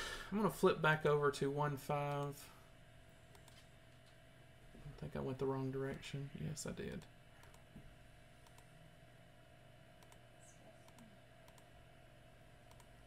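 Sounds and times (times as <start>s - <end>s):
low room tone hum: 0.0s - 13.0s
computer mouse clicks: 3.3s - 3.7s, 7.0s - 7.7s, 8.4s - 8.7s, 10.0s - 11.7s, 12.6s - 12.9s.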